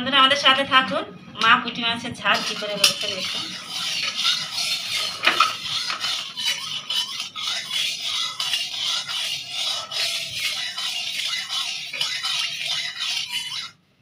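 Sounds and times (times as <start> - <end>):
spatula scraping a pan: 2.3 - 13.8
oil sizzling in a pan: 2.4 - 13.2.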